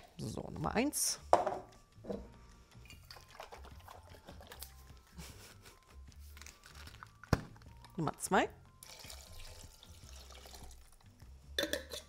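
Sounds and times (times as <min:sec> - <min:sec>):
container knock: 0:01.3 - 0:02.2
liquid pouring into pot: 0:02.9 - 0:04.6, 0:08.8 - 0:12.0.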